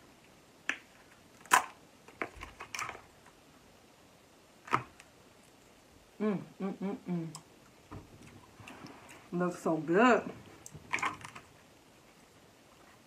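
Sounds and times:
crab shell cracking: 0.7s - 3.0s
person humming: 6.2s - 7.4s.

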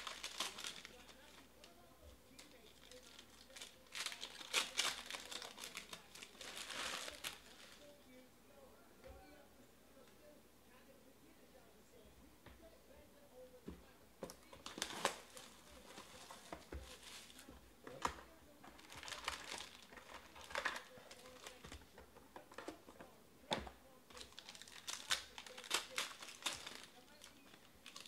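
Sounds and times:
foil wrappers crinkling: 0.0s - 8.0s, 14.5s - 22.0s, 24.1s - 28.0s.

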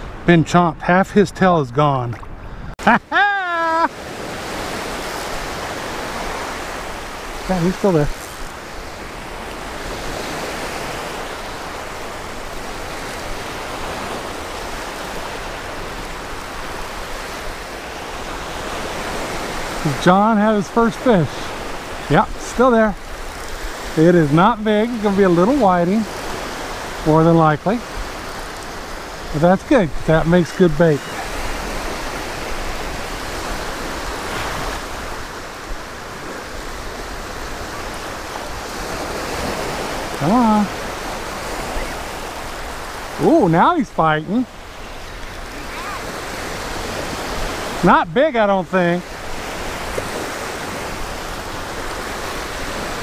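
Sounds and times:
small waves breaking on sand: 1.8s - 53.0s.

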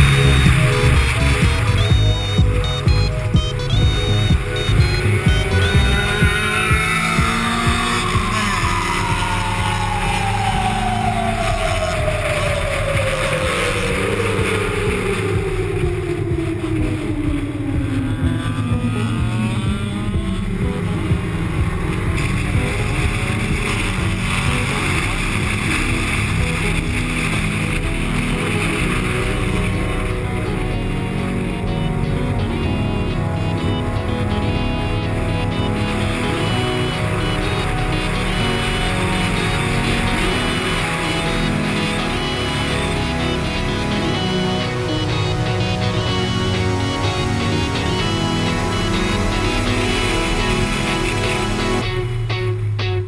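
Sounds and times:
race car engine running hard: 0.0s - 52.8s
long falling tone: 0.0s - 53.0s.

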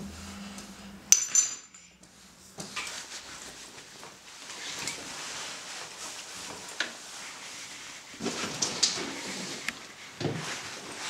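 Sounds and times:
sharp clink with high ring: 1.1s - 2.0s
rustling of clothing: 2.0s - 11.0s.

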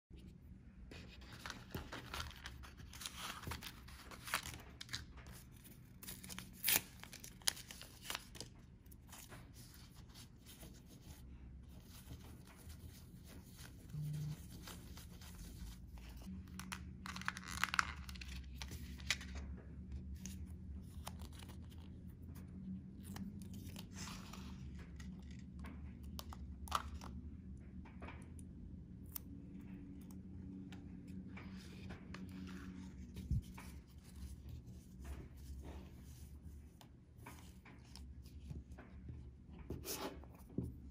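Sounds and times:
faint low hum: 8.8s - 40.9s.

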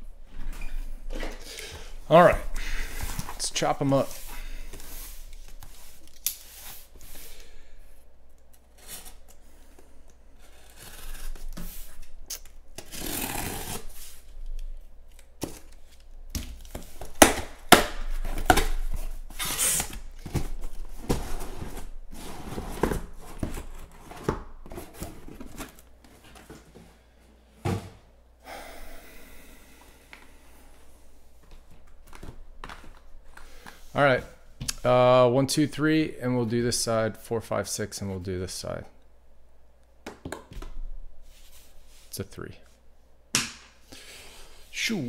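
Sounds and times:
cardboard scraping and rustling: 18.2s - 26.8s
box thump: 27.6s - 28.0s.

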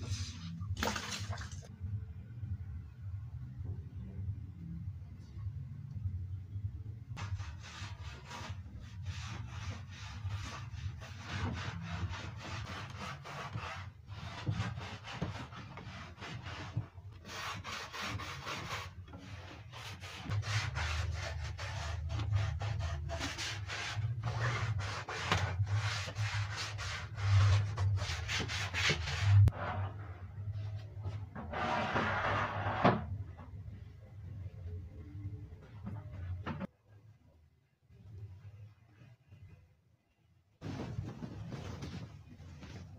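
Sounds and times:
low steady hum: 0.0s - 12.2s, 26.5s - 42.9s.

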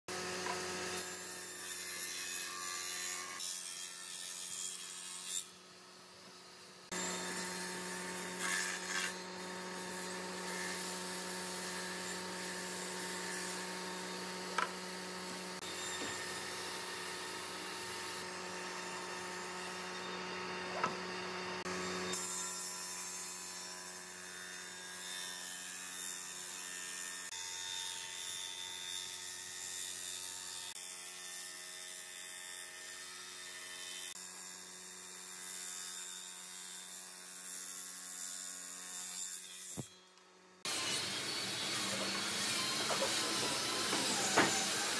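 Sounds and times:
woodworking machine motor hum: 6.9s - 22.2s, 40.7s - 44.9s
jointer planing a board: 6.9s - 27.4s, 40.6s - 44.9s
table saw ripping a plank: 6.9s - 34.2s, 35.2s - 44.9s.

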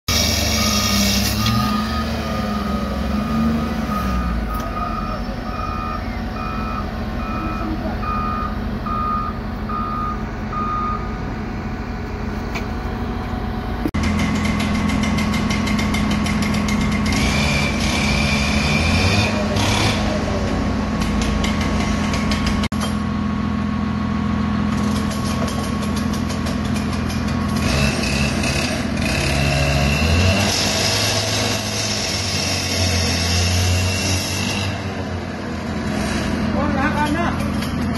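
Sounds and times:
vehicle reversing alarm beeps: 0.1s - 11.3s
power cutter engine sawing: 12.3s - 22.7s, 24.7s - 37.9s.

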